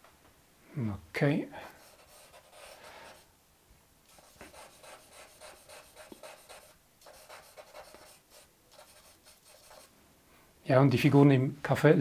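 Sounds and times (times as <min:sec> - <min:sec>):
charcoal scratching on paper: 0:01.8 - 0:03.2, 0:04.1 - 0:09.9.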